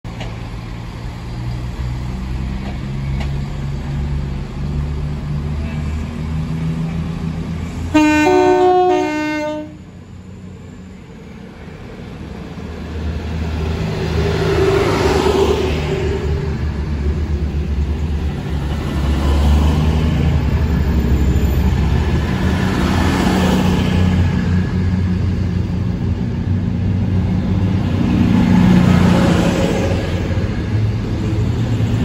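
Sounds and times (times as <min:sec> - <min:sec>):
train wheel noise: 0:00.1 - 0:32.0
train two-tone horn: 0:07.9 - 0:09.9.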